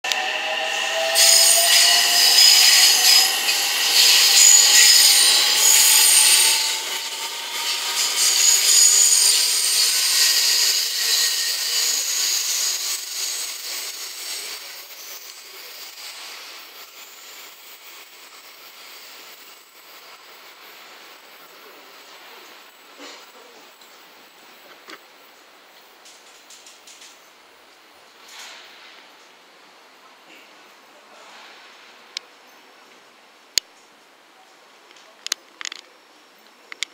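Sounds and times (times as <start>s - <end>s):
electric train inverter whine: 0.0s - 22.7s
steel wheels on rails: 0.0s - 22.8s.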